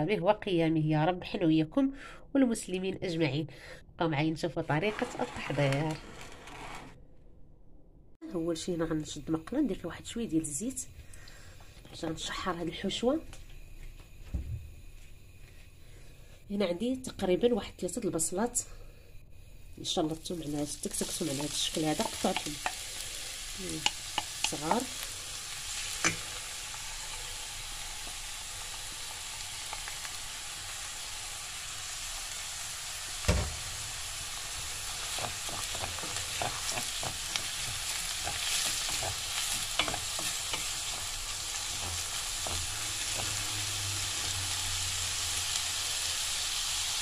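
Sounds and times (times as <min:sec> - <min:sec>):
spatula scraping metal pan: 0:04.8 - 0:07.0
onions sizzling in oil: 0:19.8 - 0:47.0.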